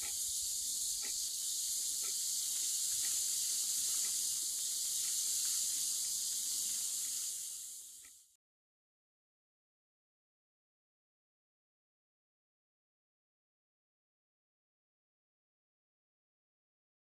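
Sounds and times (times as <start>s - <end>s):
faint ticking: 0.0s - 8.4s
steady high hiss: 0.0s - 8.4s.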